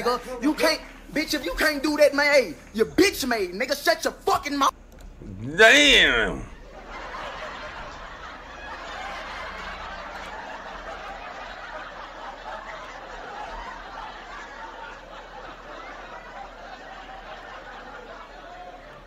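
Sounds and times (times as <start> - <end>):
background hiss: 0.0 - 7.0.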